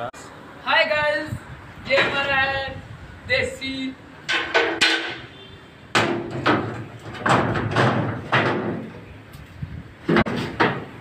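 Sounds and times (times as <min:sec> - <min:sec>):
steel pipes and boards clattering: 0:04.2 - 0:09.2, 0:10.0 - 0:11.0.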